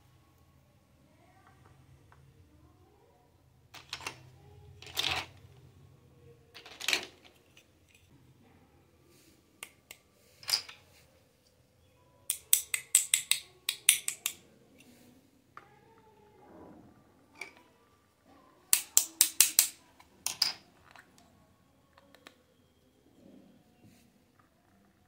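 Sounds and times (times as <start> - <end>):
plastic toy pieces knocking on table: 6.6 - 7.4.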